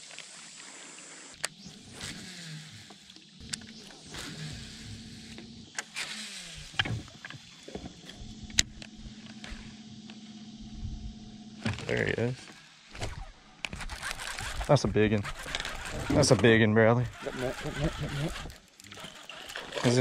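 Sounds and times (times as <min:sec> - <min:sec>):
fishing reel whirring: 0:00.9 - 0:20.0
spool spinning down: 0:01.2 - 0:20.0
reel clicks: 0:01.4 - 0:10.2, 0:12.9 - 0:20.0.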